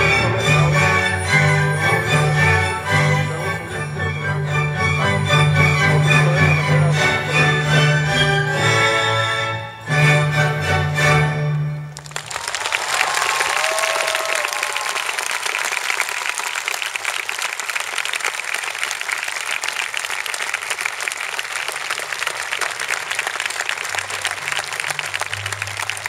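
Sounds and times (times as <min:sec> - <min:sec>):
audience applauding: 0:12.0 - 0:26.0.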